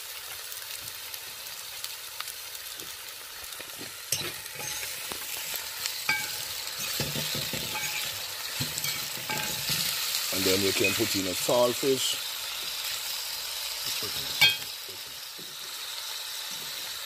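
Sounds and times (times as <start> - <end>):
vegetables sizzling in oil: 0.0 - 17.0
spoon scraping a pot: 6.1 - 10.0.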